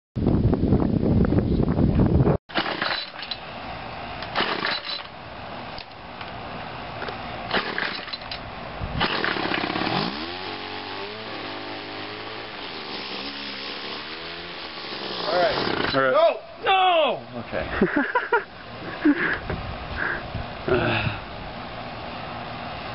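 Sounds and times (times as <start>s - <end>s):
string trimmer engine idling: 2.5s - 16.1s.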